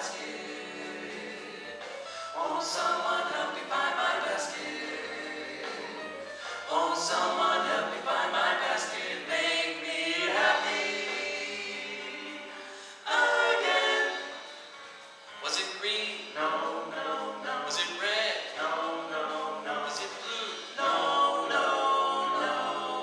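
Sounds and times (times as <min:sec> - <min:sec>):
male vocal quartet singing: 0:00.0 - 0:23.0.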